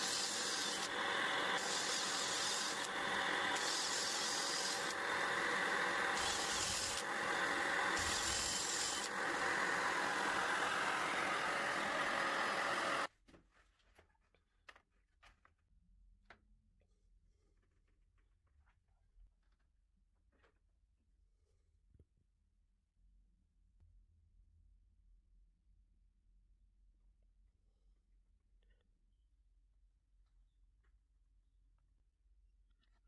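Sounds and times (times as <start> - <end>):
dust extraction vacuum droning: 0.0 - 13.1
power tool cutting wood: 0.0 - 13.1.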